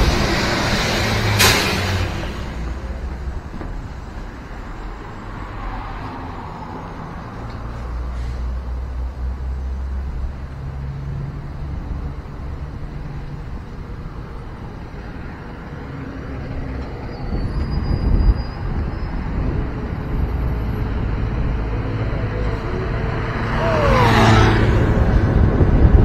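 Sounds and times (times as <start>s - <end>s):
road traffic rumble: 0.0s - 26.0s
vehicle rushing past: 15.8s - 26.0s.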